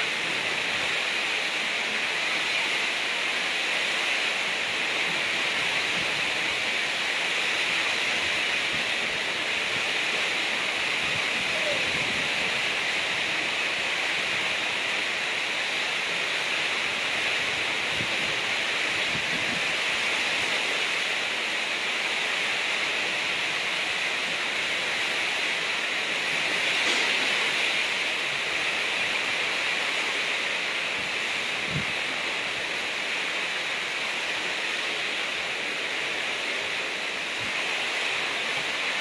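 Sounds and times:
heavy rain: 0.0 - 39.0
rough sea: 0.0 - 39.0
strong wind: 0.0 - 39.0.

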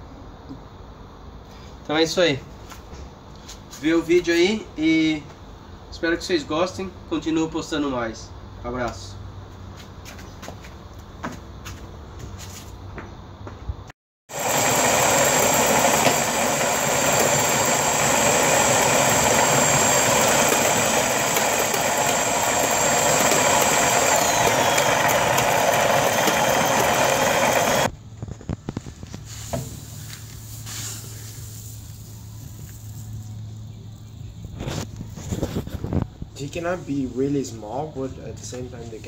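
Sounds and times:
drill motor whine: 14.3 - 27.9
grain grinding: 14.3 - 27.9, 29.3 - 33.4
soft rustling of crushed malt: 28.2 - 33.7.

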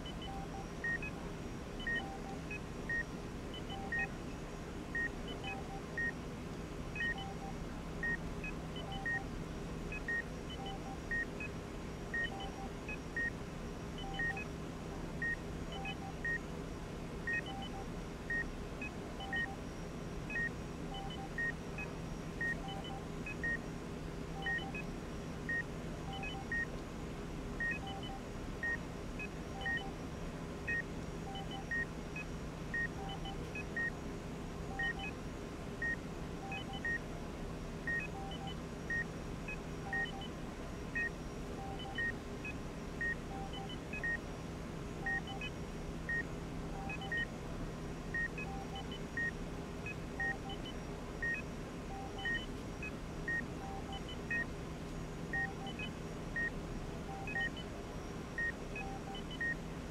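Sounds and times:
low room hum: 0.0 - 59.9
patient monitor beeping: 1.8 - 4.1, 7.0 - 8.2, 8.8 - 9.2, 12.2 - 13.3, 14.0 - 14.5, 17.3 - 19.6, 20.4 - 23.6, 24.4 - 24.9, 25.5 - 26.7, 27.6 - 28.8, 29.5 - 30.0, 30.7 - 31.9, 32.8 - 34.0, 34.7 - 35.1, 37.9 - 39.1, 39.9 - 40.4, 41.0 - 42.2, 45.0 - 47.3, 48.2 - 51.4, 52.0 - 52.5, 53.3 - 54.5, 55.4 - 57.7, 58.3 - 59.6.

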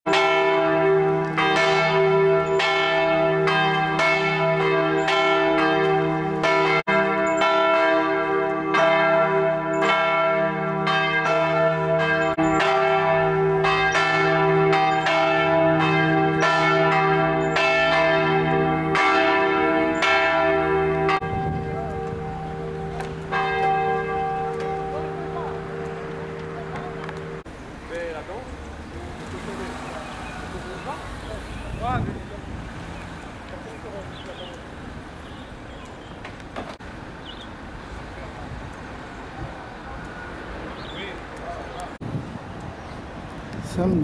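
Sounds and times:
church bells ringing: 0.1 - 28.4.

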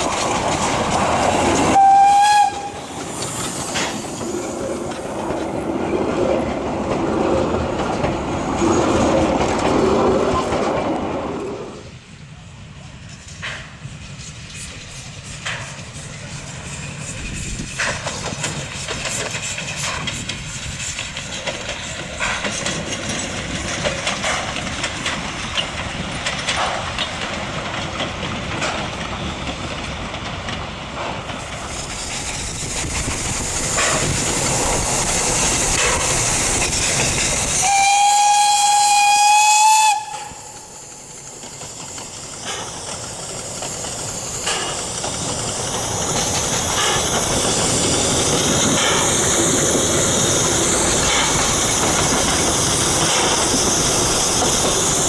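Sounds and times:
high steam hiss: 0.0 - 6.6, 7.3 - 27.8, 28.4 - 55.0
steam locomotive running: 0.0 - 55.0
steam whistle blast: 1.7 - 2.9, 37.6 - 40.6.

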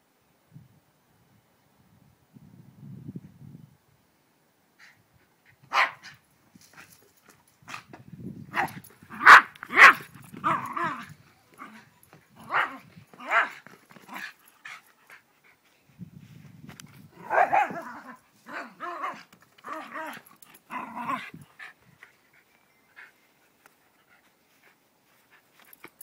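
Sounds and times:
small dog barking: 5.7 - 6.2, 8.5 - 14.3, 17.2 - 21.2.

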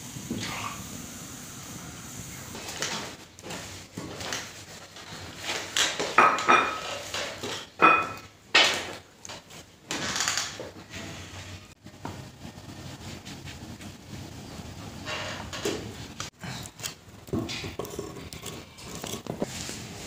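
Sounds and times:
rustling: 17.6 - 20.0.

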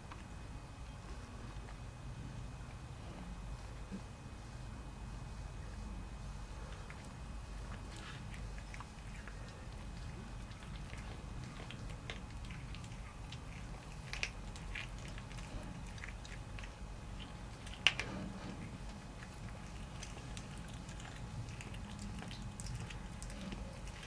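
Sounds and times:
cat chewing and crunching: 5.6 - 24.0.

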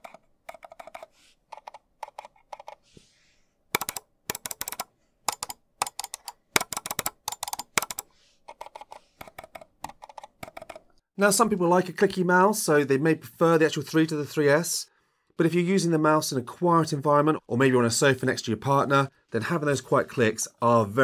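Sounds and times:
sharp loud mouse clicks: 3.8 - 8.0.

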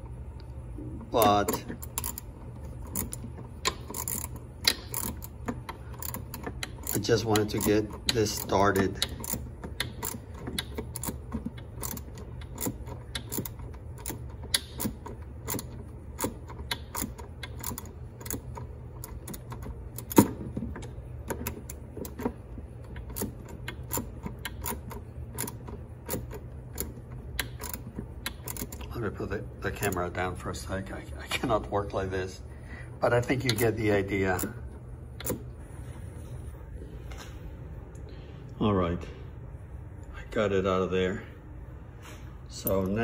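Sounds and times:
low steady hum: 0.0 - 43.0
socket wrench clicking: 1.2 - 28.9.

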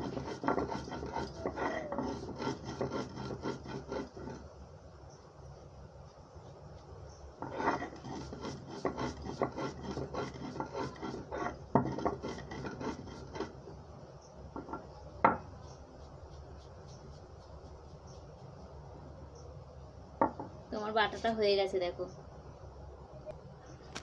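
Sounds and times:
stone roller grinding on stone slab: 0.0 - 4.5, 7.4 - 13.8.

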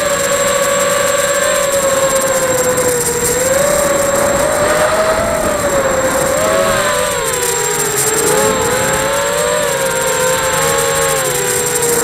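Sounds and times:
drone motors whining: 0.0 - 12.0.

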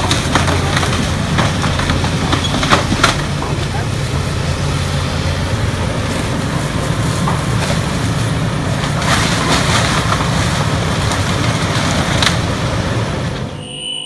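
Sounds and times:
wood cracking and crashing: 0.0 - 4.7, 7.0 - 13.5
diesel engine running under load: 0.0 - 13.6.

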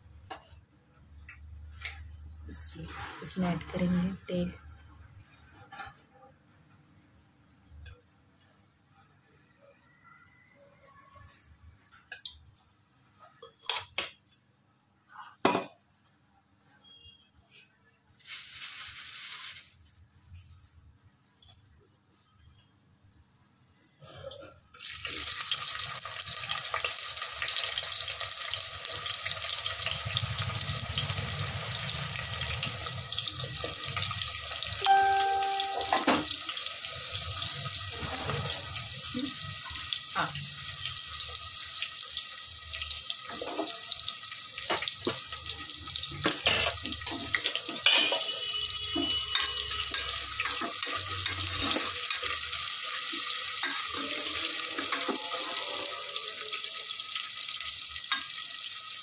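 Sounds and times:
onions sizzling in hot oil: 18.2 - 19.9, 24.8 - 59.0.

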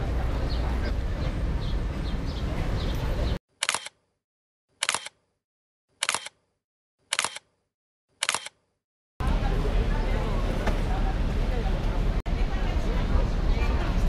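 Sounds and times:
steady background noise: 0.0 - 3.4, 9.2 - 14.0
camera shutter click: 3.6 - 4.0, 4.8 - 5.2, 6.0 - 6.4, 7.1 - 7.5, 8.2 - 8.6.

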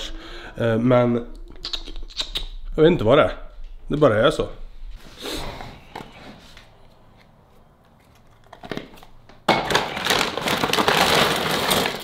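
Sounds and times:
plastic bag crinkling and rustling: 7.9 - 12.0.

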